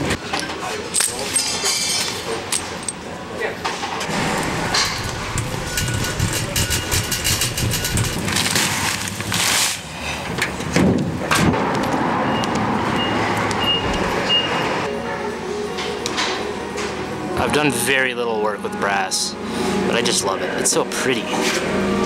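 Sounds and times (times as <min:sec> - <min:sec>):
vehicle traffic: 0:03.8 - 0:17.9, 0:19.1 - 0:22.0
shopping cart rattling: 0:04.1 - 0:09.9.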